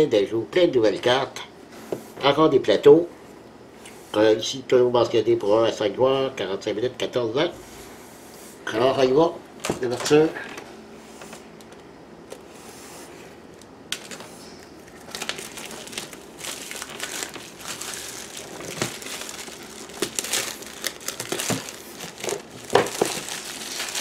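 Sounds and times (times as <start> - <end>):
plastic shrink-wrap crinkling: 13.5 - 24.0.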